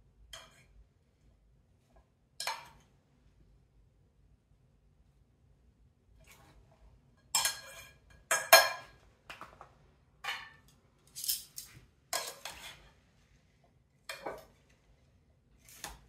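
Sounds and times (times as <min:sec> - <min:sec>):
utensils clinking on glass bowl: 0:07.4 - 0:09.0, 0:11.2 - 0:12.6.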